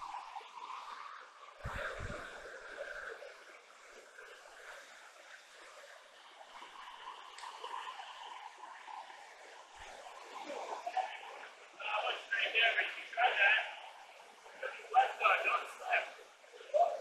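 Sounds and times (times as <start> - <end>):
river rushing over boulders: 4.2 - 17.0.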